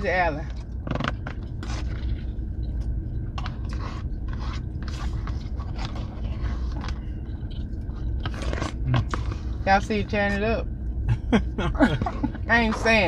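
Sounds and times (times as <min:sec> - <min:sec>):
steady low hum: 0:00.0 - 0:13.0
chewing: 0:00.6 - 0:09.6.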